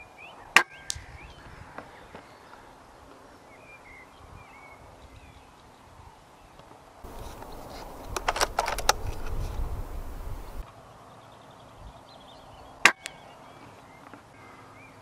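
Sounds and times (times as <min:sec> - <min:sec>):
air rifle shot: 0:07.1 - 0:10.6
rumbling handling noise: 0:07.1 - 0:10.6
sharp clicks: 0:07.1 - 0:10.6.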